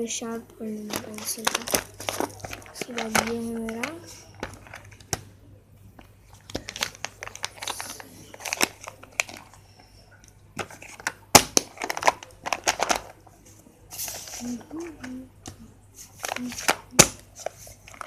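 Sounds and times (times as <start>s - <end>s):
plastic boxes clicking and knocking: 0.9s - 5.3s, 6.0s - 9.6s, 10.6s - 13.2s.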